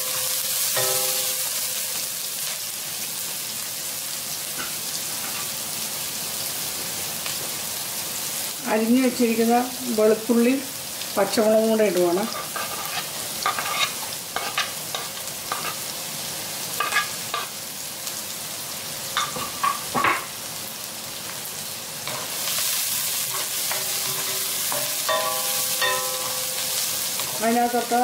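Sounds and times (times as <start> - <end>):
spoon clinking and scraping pan: 0.0 - 2.0, 12.3 - 15.8, 16.8 - 17.5, 19.2 - 20.3, 22.1 - 27.5
vegetables sizzling in hot oil: 0.0 - 28.0.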